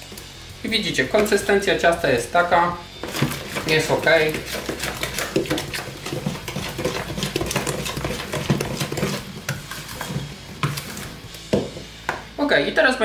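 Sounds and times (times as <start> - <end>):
spoon stirring batter in a bowl: 1.0 - 1.8, 2.9 - 12.1.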